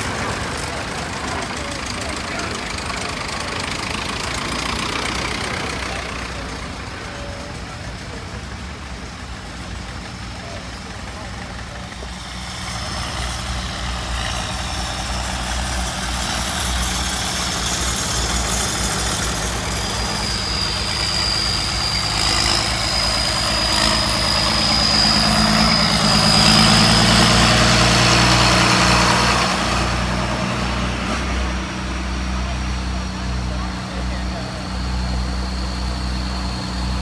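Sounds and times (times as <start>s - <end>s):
tractor engines driving past: 0.0s - 37.0s.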